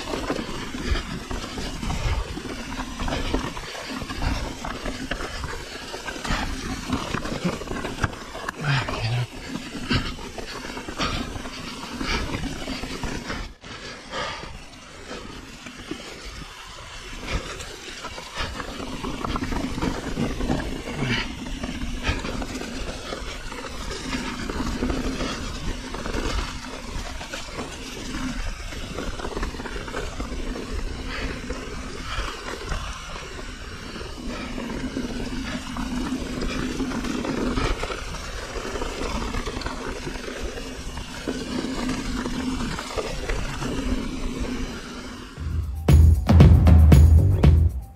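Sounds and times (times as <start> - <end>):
tyres crunching over stones: 0.0 - 13.3
bike rattling over bumps: 0.0 - 45.4
steady low rumble: 45.4 - 47.9.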